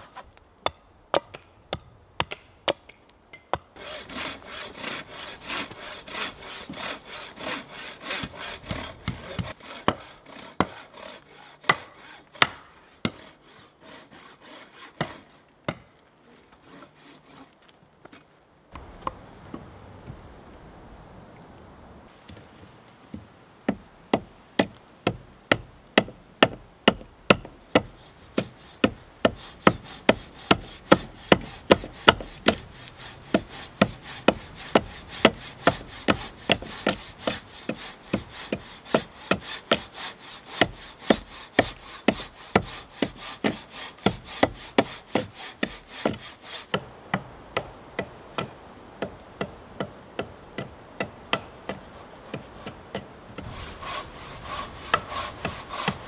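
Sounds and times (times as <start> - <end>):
axe chopping wood: 0.6 - 3.7, 8.1 - 10.8, 11.6 - 13.3, 40.5 - 53.5
steady scraping: 3.8 - 15.4, 51.7 - 56.0.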